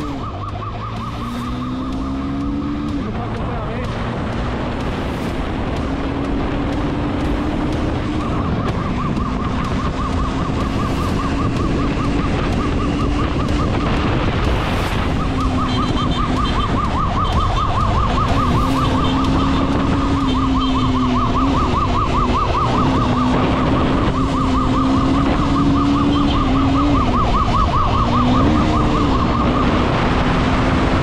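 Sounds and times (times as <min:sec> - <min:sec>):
warbling electronic siren: 0:00.0 - 0:03.1, 0:05.2 - 0:31.0
motorcycle engine: 0:00.0 - 0:31.0
wind and road noise: 0:00.0 - 0:31.0.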